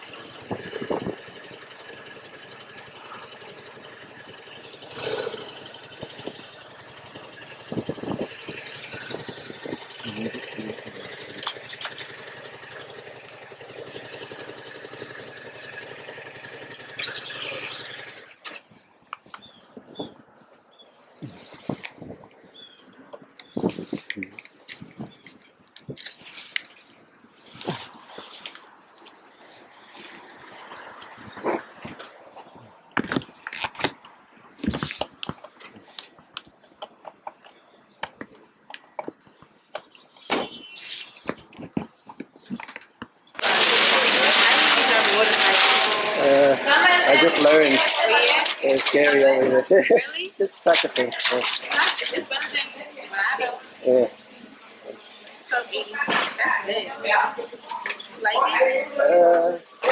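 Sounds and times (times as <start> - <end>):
motorcycle engine idling: 0.0 - 18.3.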